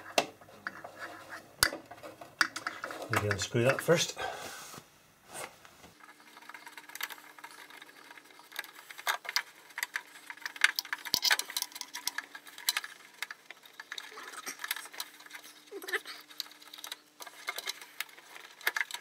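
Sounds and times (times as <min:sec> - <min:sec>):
metallic clicks and rattles: 0:06.3 - 0:19.0.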